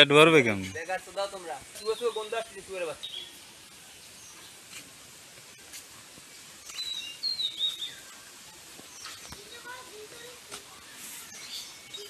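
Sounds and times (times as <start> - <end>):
background hiss: 0.0 - 12.0
bird chirping: 0.4 - 4.8, 5.5 - 12.0.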